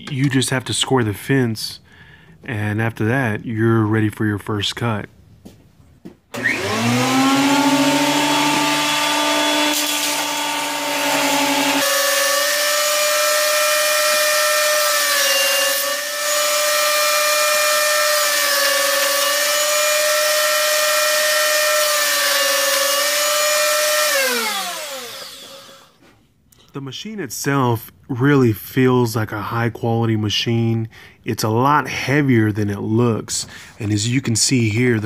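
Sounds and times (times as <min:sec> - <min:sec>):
board cutting on jointer: 0:06.3 - 0:26.0
jointer motor whining: 0:06.3 - 0:26.0.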